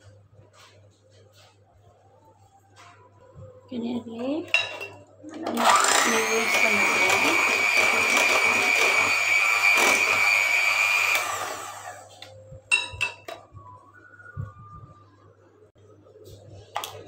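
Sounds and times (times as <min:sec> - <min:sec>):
electric hand mixer whining: 0:05.5 - 0:12.2.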